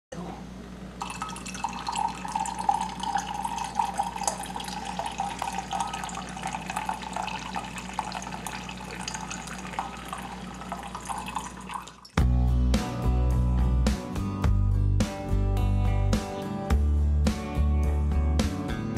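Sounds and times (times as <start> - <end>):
wine pouring into a glass: 1.0 - 12.2
guitar music: 12.2 - 18.9.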